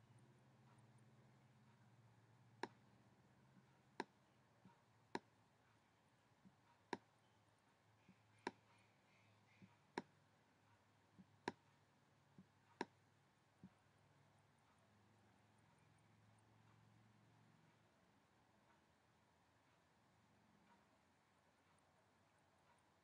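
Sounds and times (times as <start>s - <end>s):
computer mouse clicks: 11.2s - 11.6s.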